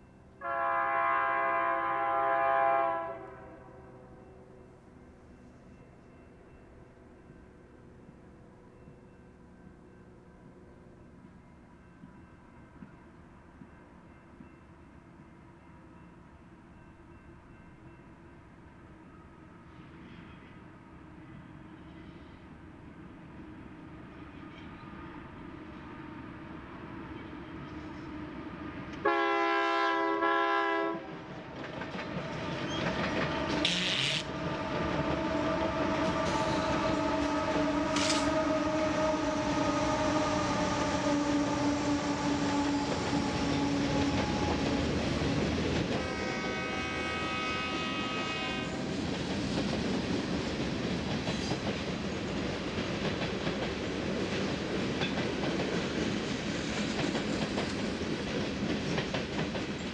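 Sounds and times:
locomotive air horn chord: 0:00.4 - 0:04.3, 0:29.0 - 0:31.2, 0:35.0 - 0:44.9, 0:46.0 - 0:48.8
train wheels clickety-clack: 0:11.2 - 0:14.7, 0:31.0 - 0:39.7, 0:40.5 - 0:59.9.

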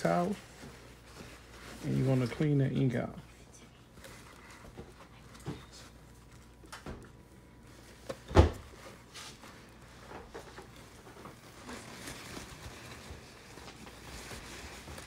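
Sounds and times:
paper towel rubbing: 0:00.0 - 0:03.2, 0:07.4 - 0:15.0.

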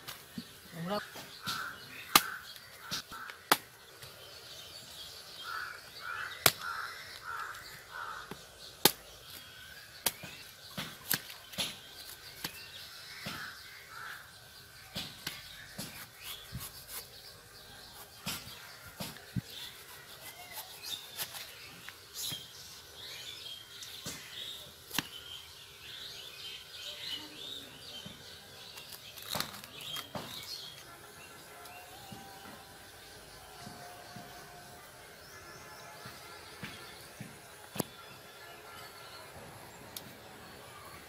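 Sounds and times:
knife chopping fruit husk: 0:00.1 - 0:04.1, 0:05.5 - 0:13.6, 0:14.9 - 0:22.6, 0:24.0 - 0:25.2, 0:28.0 - 0:30.9.

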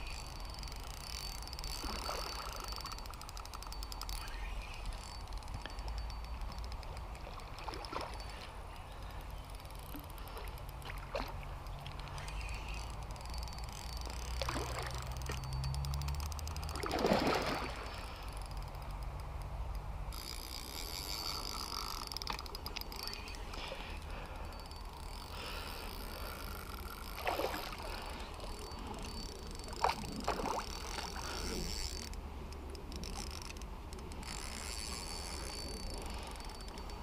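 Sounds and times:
fish splashing in water: 0:16.6 - 0:18.2.

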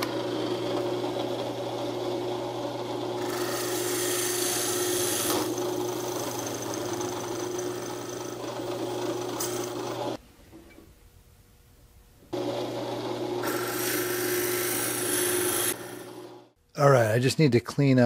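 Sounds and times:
drill press motor hum: 0:00.0 - 0:10.2, 0:12.3 - 0:16.6.

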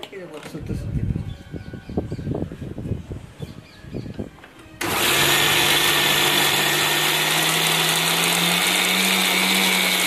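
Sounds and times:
mixer grinder motor hum: 0:04.8 - 0:10.0.

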